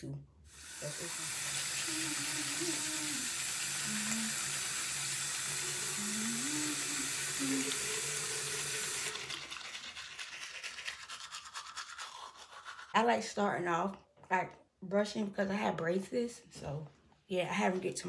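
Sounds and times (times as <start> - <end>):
tap water running into sink: 0.6 - 11.0
toothbrush scrubbing teeth: 0.6 - 13.4.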